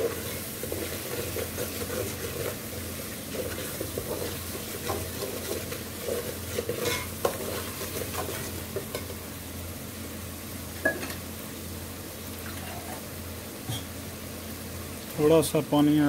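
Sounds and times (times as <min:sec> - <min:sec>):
faint sizzle of frying: 0:00.0 - 0:16.0
ladle scraping a metal pot: 0:03.4 - 0:08.5, 0:12.5 - 0:13.0.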